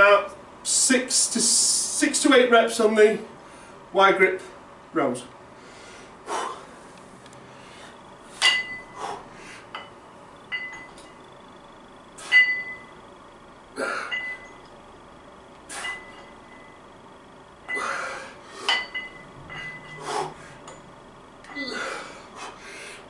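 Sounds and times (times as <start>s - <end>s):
iron weight plates clinking: 8.4s - 9.0s, 9.8s - 11.2s, 12.2s - 12.9s, 14.1s - 14.6s, 15.7s - 16.8s, 18.6s - 20.1s
forceful exhalations: 19.9s - 20.6s.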